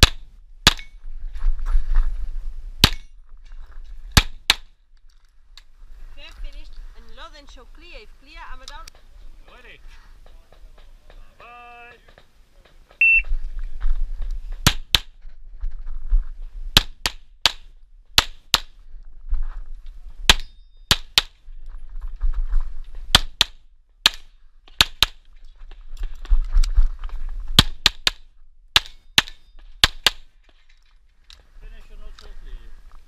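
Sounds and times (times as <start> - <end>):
shot timer beep: 13.0 - 13.2.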